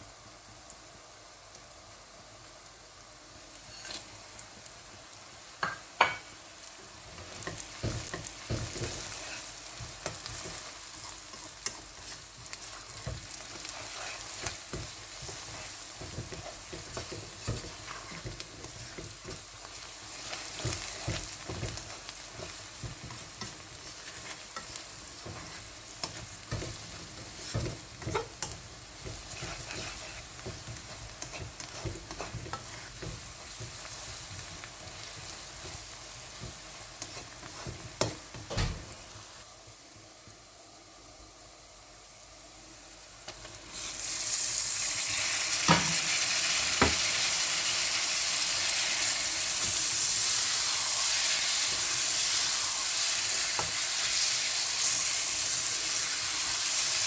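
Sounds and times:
onions sizzling in hot oil: 0.0 - 57.0
spatula scraping and knocking pan: 7.2 - 38.6.

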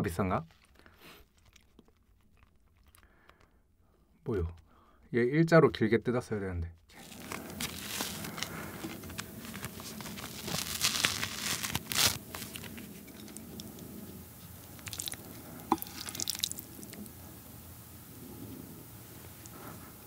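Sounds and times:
dough tearing and rustling: 6.9 - 17.0.

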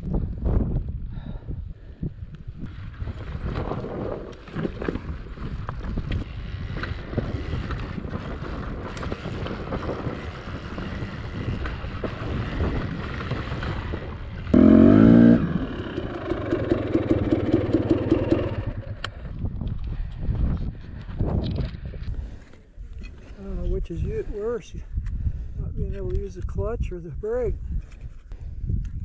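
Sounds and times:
dirt bike engine revving: 10.1 - 19.0.

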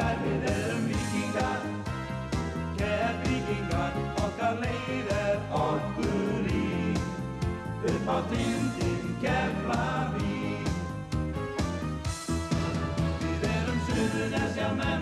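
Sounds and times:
man singing: 0.0 - 1.8, 2.8 - 7.2, 7.8 - 10.7
steady drum beat: 0.0 - 15.0.

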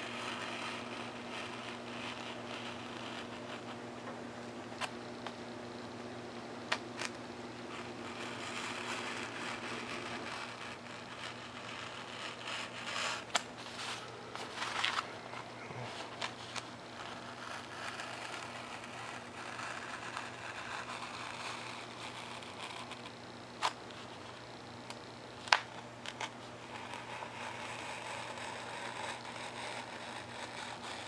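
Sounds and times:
knife cutting foam: 0.0 - 3.8, 6.7 - 15.1, 15.8 - 24.3, 25.5 - 31.0
paper handling: 12.8 - 17.2.

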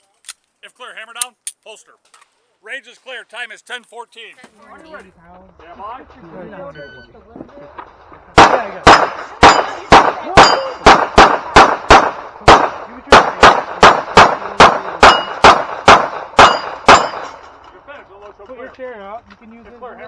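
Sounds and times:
pistol shots: 7.8 - 17.6
steel plates ringing: 9.5 - 10.8, 15.1 - 15.4, 16.4 - 17.6.

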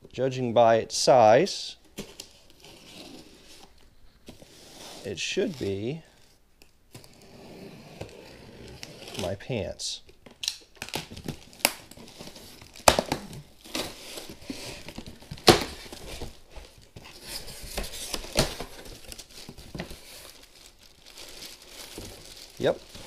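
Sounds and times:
plastic bag crinkling: 18.8 - 23.0.

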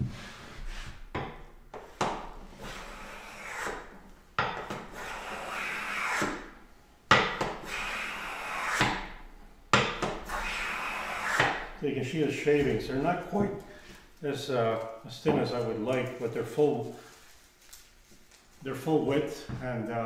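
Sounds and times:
hand plane hissing on board: 2.6 - 3.9, 4.8 - 6.5, 7.6 - 9.0, 10.3 - 11.6.

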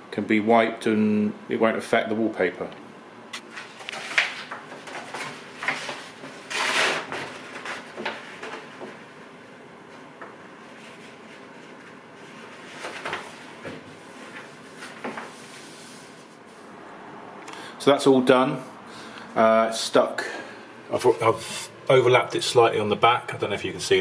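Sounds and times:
wallpaper rustling: 3.5 - 9.2, 9.9 - 16.8.

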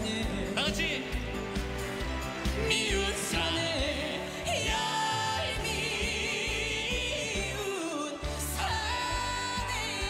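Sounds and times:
band accompaniment with steady beat: 0.0 - 10.0
woman singing with vibrato: 2.6 - 10.0.

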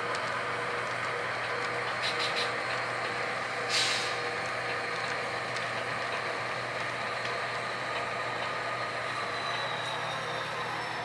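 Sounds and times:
model diesel locomotive sound: 0.0 - 11.0
short hiss: 3.7 - 4.2.

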